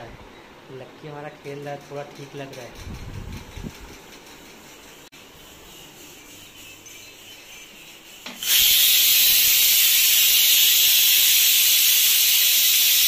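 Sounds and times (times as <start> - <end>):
pressure cooker steam hiss: 5.2 - 13.0.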